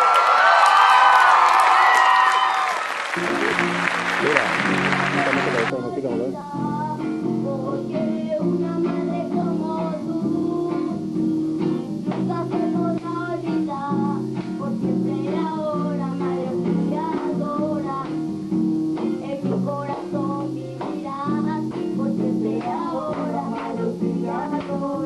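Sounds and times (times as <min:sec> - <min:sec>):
guitar chords: 0:03.1 - 0:25.0
girl singing: 0:05.7 - 0:18.4, 0:19.0 - 0:25.0.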